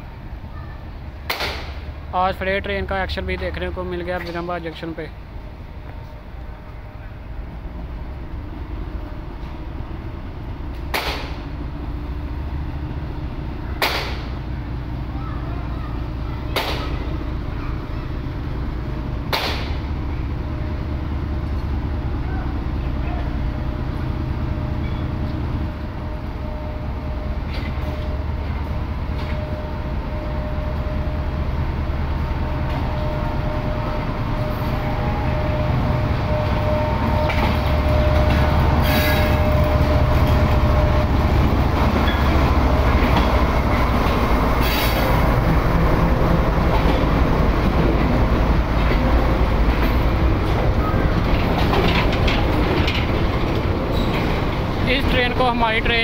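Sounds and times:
diesel locomotive engine drone: 0.0s - 56.0s
wheels clacking over rail joints: 32.2s - 56.0s.

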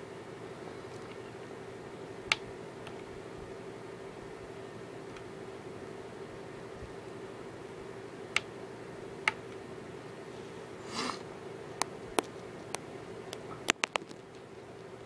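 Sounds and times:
steady low hum: 0.0s - 15.0s
short breathy noise: 10.4s - 11.3s
sharp clicks: 11.8s - 14.4s.

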